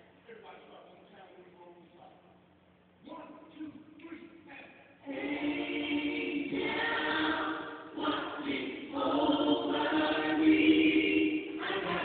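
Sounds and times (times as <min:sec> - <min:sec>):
choir singing: 0:05.0 - 0:12.0.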